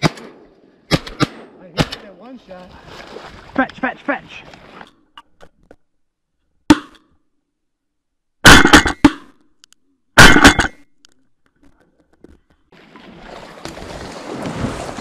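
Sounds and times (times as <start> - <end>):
shotgun shots: 0.0 - 2.1, 8.4 - 9.3, 10.2 - 10.7.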